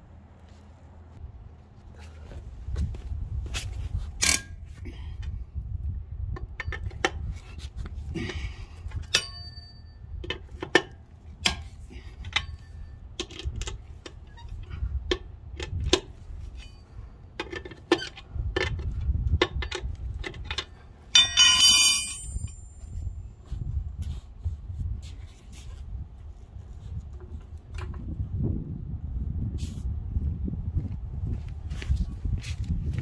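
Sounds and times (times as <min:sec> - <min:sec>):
wrench clanging on concrete: 0:04.2 - 0:04.8, 0:08.2 - 0:13.7, 0:15.1 - 0:23.1.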